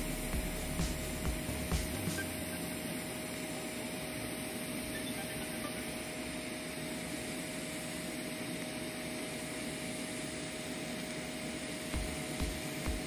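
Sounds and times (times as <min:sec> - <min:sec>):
welding arc hissing: 0:00.0 - 0:03.6, 0:09.5 - 0:13.0.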